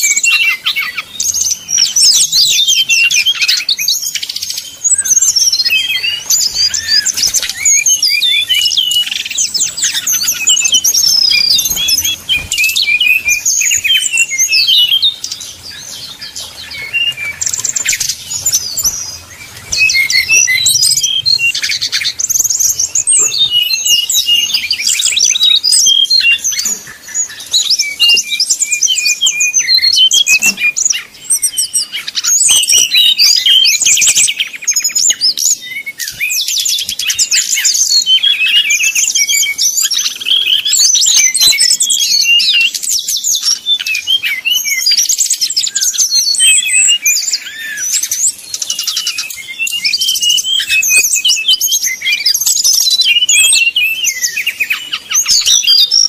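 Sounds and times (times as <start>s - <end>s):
bird singing fast trills: 0.0s - 56.0s.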